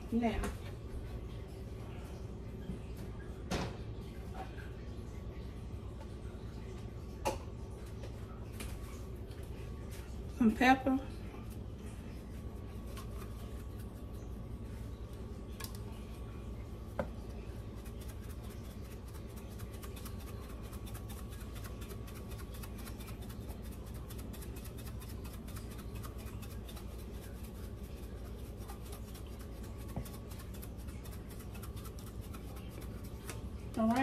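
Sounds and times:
steady low hum: 0.0s - 34.0s
pepper mill grinding ticks: 28.3s - 34.0s.

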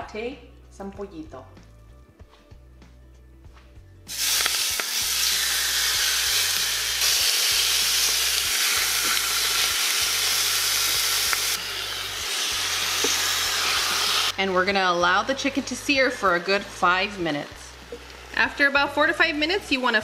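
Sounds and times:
chicken sizzling in pot: 4.1s - 20.0s.

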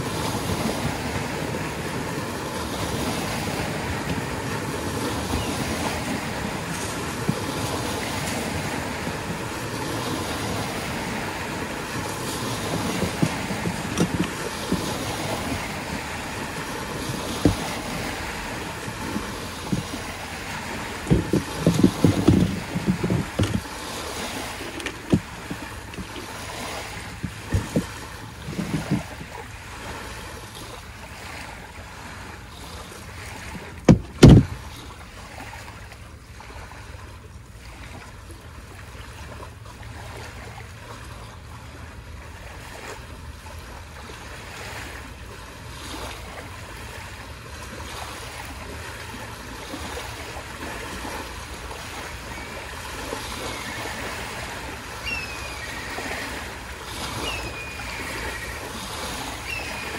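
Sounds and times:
wind on microphone: 0.0s - 29.5s, 33.6s - 34.8s
waves washing on beach: 0.0s - 59.9s
low thumps: 21.0s - 23.6s.

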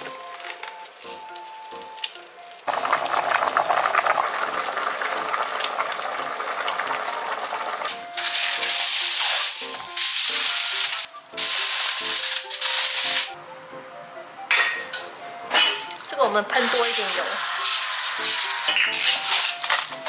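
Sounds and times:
aluminium foil crinkling: 0.0s - 2.7s, 8.2s - 13.4s, 16.6s - 20.0s
stew bubbling in a pot: 2.7s - 7.9s.

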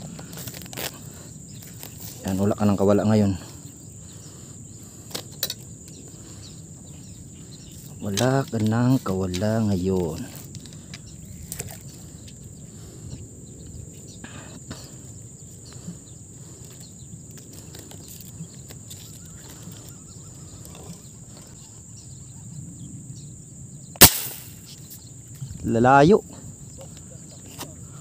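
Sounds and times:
insects droning: 0.0s - 28.0s
loud gunshot: 24.0s - 24.6s.

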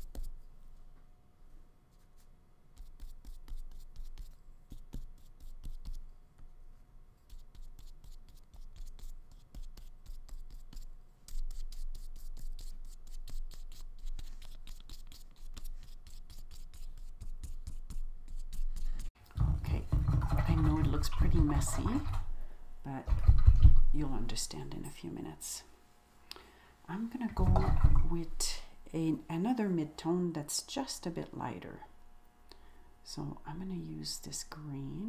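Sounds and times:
paintbrush strokes on paper: 7.2s - 19.2s.

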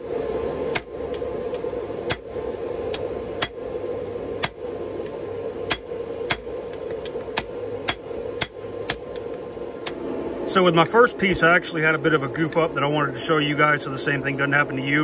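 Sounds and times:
steady hum: 0.0s - 15.0s
hammer striking hot steel on anvil: 0.7s - 0.9s, 2.1s - 2.3s, 2.9s - 3.6s, 4.4s - 4.6s, 5.7s - 6.5s, 7.4s - 9.1s.

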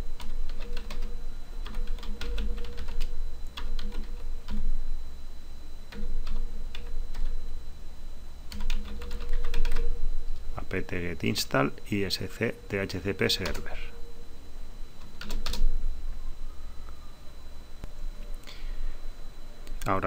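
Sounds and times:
low hum: 0.0s - 20.0s
typing on computer keyboard: 0.2s - 4.6s, 8.5s - 9.8s, 15.1s - 15.6s.

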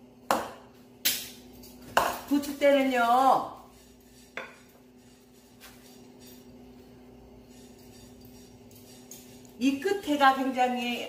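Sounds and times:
ceramic bowl clinking on stone: 3.6s - 6.8s, 7.4s - 9.6s.

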